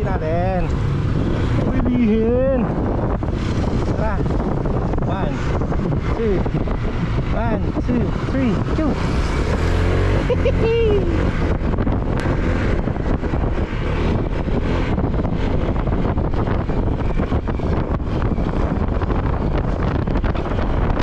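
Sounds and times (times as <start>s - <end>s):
road noise: 0.0s - 21.0s
wind rushing over microphone: 0.0s - 21.0s
scooter engine: 8.9s - 13.0s.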